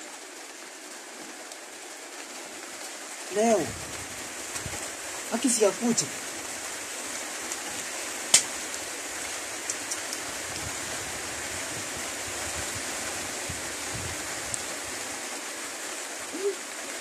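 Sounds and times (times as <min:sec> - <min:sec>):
faint ticks: 0:09.6 - 0:10.2.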